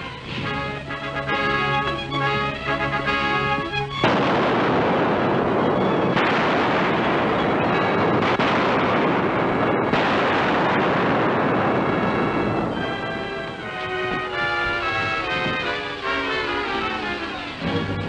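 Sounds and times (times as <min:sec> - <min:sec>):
steam locomotive hissing steam: 0:14.8 - 0:18.0.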